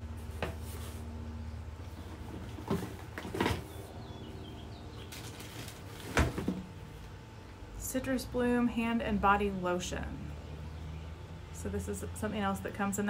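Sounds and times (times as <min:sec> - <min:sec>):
low background hum: 0:00.0 - 0:13.0
packaging rustling: 0:05.0 - 0:06.7.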